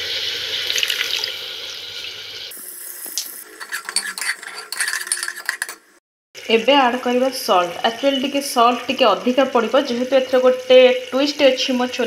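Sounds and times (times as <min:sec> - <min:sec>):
paste sizzling in oil: 0:00.0 - 0:06.0
ladle scraping and clinking pot: 0:03.4 - 0:06.0.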